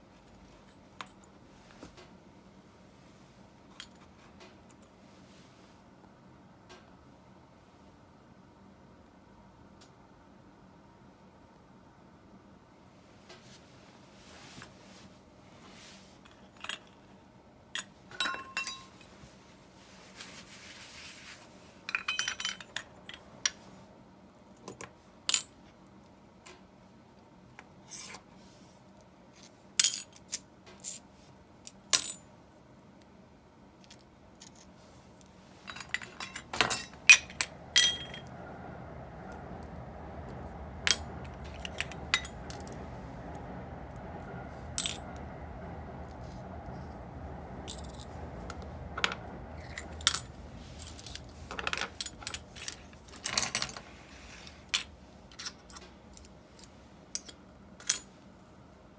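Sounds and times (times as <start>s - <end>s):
small metal parts clinking: 17.8s - 19.1s, 21.9s - 23.2s, 35.6s - 38.3s, 40.8s - 42.8s, 44.8s - 45.1s, 47.6s - 53.9s, 54.7s - 58.1s.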